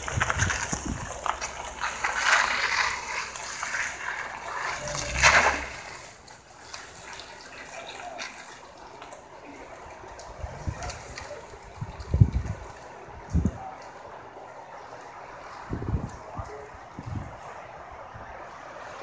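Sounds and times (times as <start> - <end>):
van tyres and engine rushing: 0.0 - 19.0.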